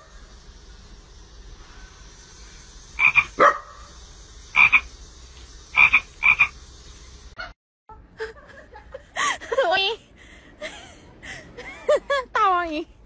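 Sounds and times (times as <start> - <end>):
small frog croaking: 3.0 - 3.4, 4.5 - 4.9, 5.7 - 6.6.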